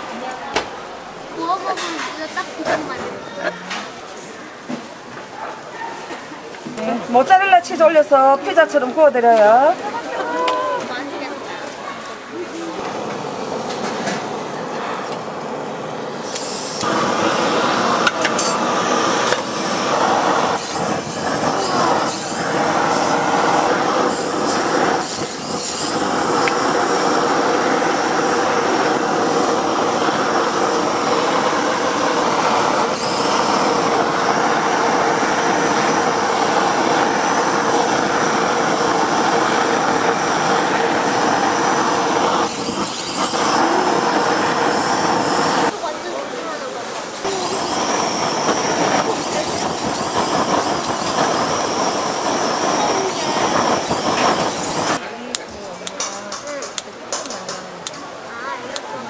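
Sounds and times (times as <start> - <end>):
fish sizzling on a griddle: 12.6 - 55.0.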